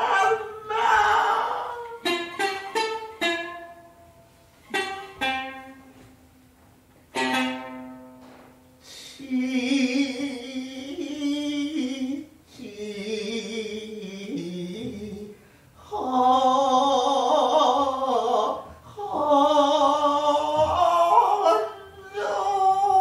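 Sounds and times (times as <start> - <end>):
shamisen plucking: 0.0 - 8.9, 19.4 - 23.0.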